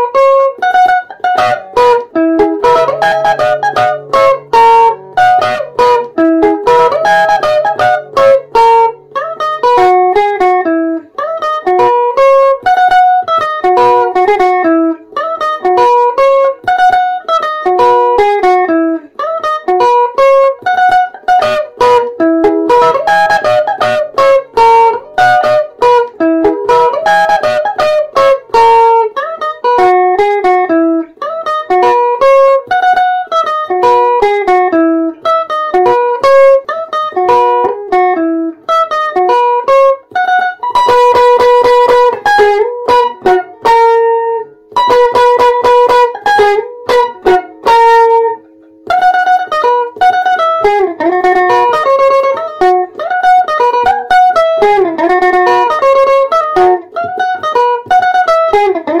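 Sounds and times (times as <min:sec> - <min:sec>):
electric guitar melody: 0:00.0 - 0:59.0.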